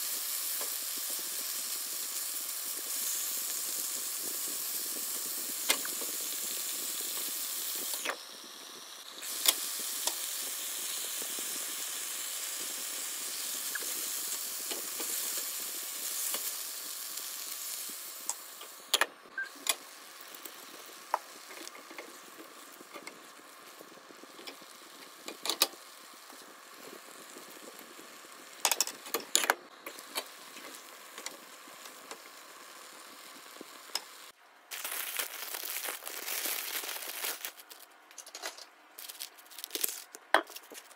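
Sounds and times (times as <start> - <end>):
chicken and onions sizzling in pan: 0.0 - 37.8
braising liquid bubbling: 19.2 - 29.0.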